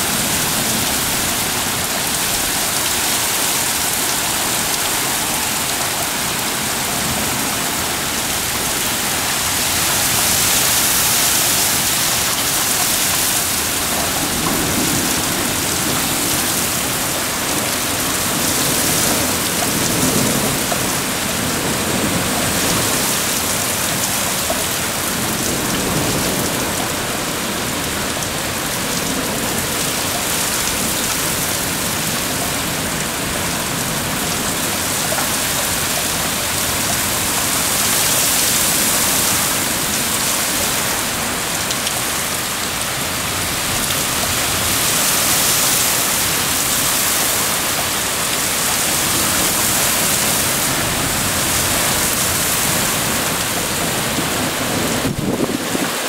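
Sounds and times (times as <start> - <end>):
heavy rain pouring: 0.0 - 56.0.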